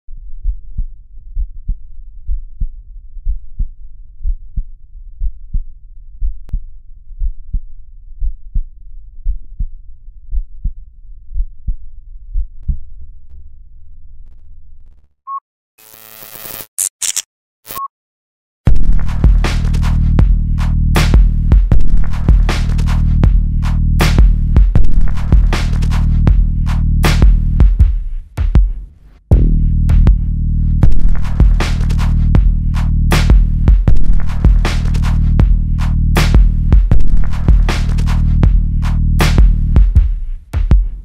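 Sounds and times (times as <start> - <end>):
static bursts: 15.8 - 17.8
heartbeat thuds: 21.2 - 22.5, 23.2 - 23.5, 24.2 - 25.6, 26.2 - 26.6, 27.2 - 31.6, 32.3 - 32.7, 33.3 - 34.6, 35.4 - 35.6, 36.3 - 37.7, 38.4 - 38.7, 39.4 - 41.0
low hum: 29.3 - 30.8.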